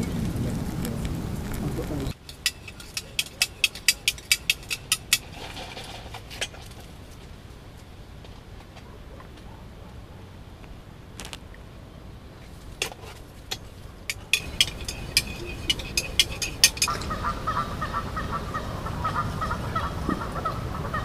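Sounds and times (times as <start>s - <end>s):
sharp clinks: 2.2s - 5.3s, 13.5s - 17.2s
geese honking: 14.1s - 21.0s.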